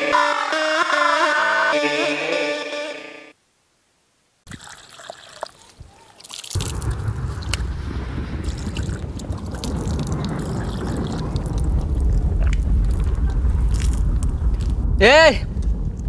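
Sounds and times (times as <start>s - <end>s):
water splashing over hands: 4.5s - 7.0s
strong low rumble: 6.6s - 16.0s.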